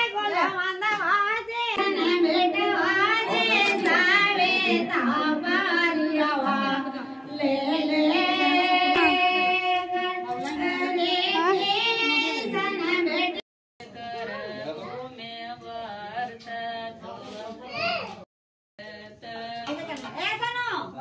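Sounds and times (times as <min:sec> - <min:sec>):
high voices singing slowly: 0:01.8 - 0:16.1.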